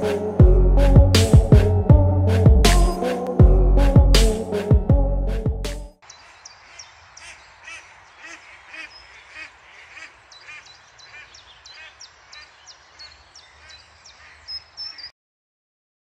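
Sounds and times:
short harsh bird calls: 6.0s - 15.1s
songbirds chirping: 6.0s - 15.1s.

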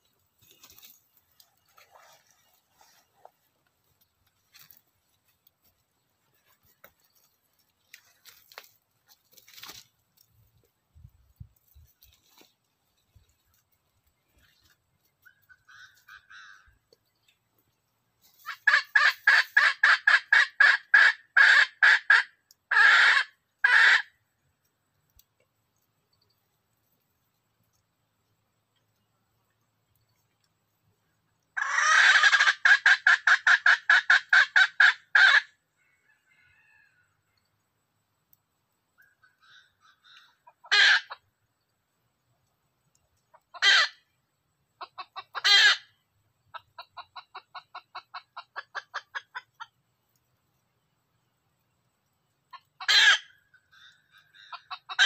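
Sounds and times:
faint rustles in dry grass: 0.0s - 19.8s, 24.3s - 32.4s
junglefowl cackling calls: 14.3s - 17.1s, 18.2s - 24.2s, 31.4s - 37.4s, 39.0s - 41.3s, 43.3s - 49.8s, 52.5s - 55.0s.

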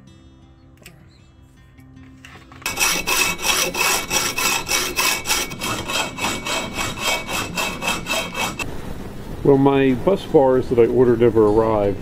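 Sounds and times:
faint background music: 0.0s - 5.9s, 7.1s - 12.0s
hacksaw cutting metal: 2.6s - 8.6s.

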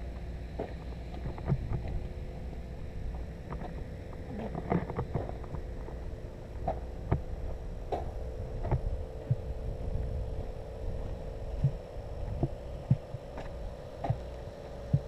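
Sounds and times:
steady hum: 0.0s - 15.0s
dull thumps and clicks: 0.2s - 2.1s, 3.1s - 6.0s, 6.6s - 9.5s, 11.6s - 15.0s.

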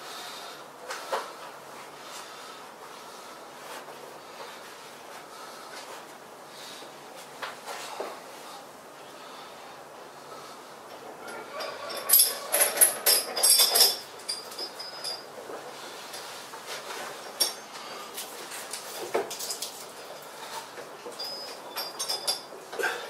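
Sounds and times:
steel chains clinking and rattling: 11.2s - 15.5s, 17.2s - 17.8s, 18.5s - 23.0s.

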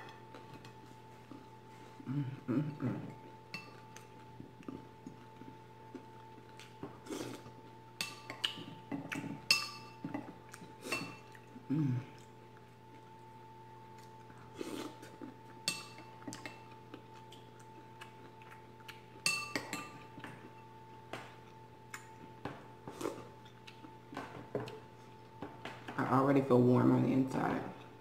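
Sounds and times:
soft eating sounds: 0.0s - 28.0s
spoon clinking on ceramic bowl: 19.2s - 20.0s.

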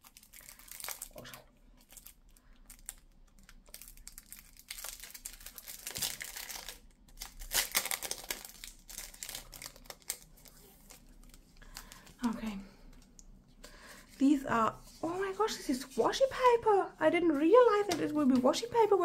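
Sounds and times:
paper sheets crinkling: 3.6s - 12.1s.

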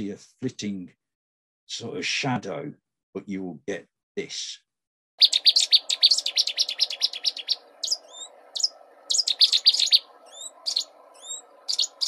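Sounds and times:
warbler song: 5.2s - 12.0s.

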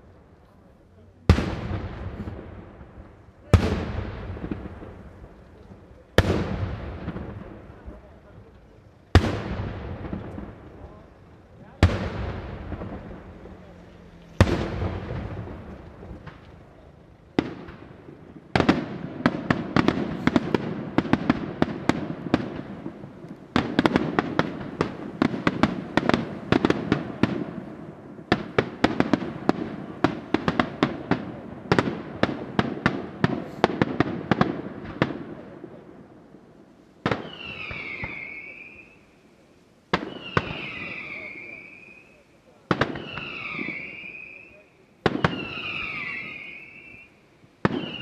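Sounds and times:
firework bangs: 1.1s - 39.1s, 39.9s - 48.0s
falling firework whistle: 37.1s - 39.2s, 40.0s - 48.0s.

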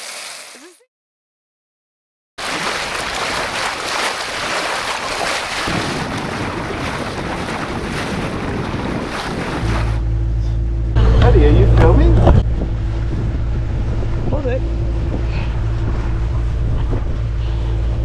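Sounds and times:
boat engine drone: 2.4s - 18.0s
water rushing along boat hull: 2.4s - 18.0s
wind buffeting microphone: 3.1s - 10.1s, 11.0s - 18.0s.

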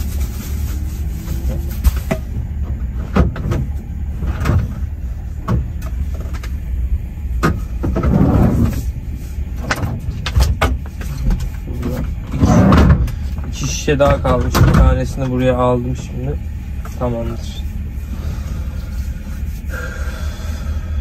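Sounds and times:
low engine rumble: 0.0s - 21.0s
knocks clicks and rustling: 0.8s - 6.6s, 7.4s - 8.9s, 9.6s - 16.2s.

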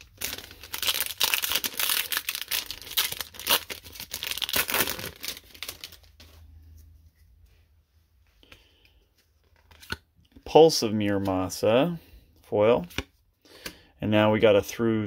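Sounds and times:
foil wrapper crinkling and tearing: 0.0s - 6.3s.

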